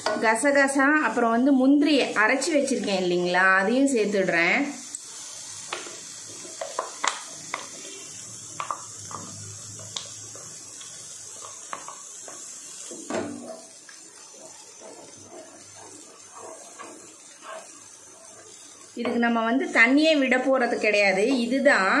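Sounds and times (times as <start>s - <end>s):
steady hiss: 4.6s - 21.6s.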